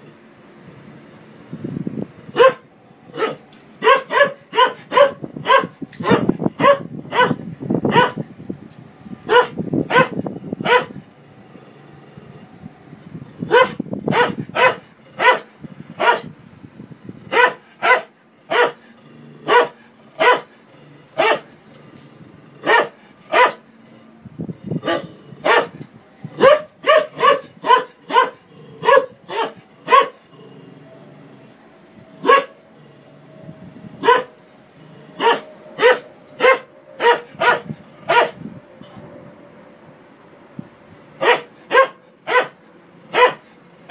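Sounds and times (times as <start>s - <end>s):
dog barking: 2.4s - 2.6s, 3.2s - 8.2s, 9.3s - 11.0s, 13.5s - 16.3s, 17.3s - 18.8s, 19.5s - 20.5s, 21.2s - 21.5s, 22.6s - 23.6s, 24.8s - 25.8s, 26.4s - 30.2s, 32.2s - 32.6s, 34.0s - 34.4s, 35.2s - 38.4s, 41.2s - 43.5s.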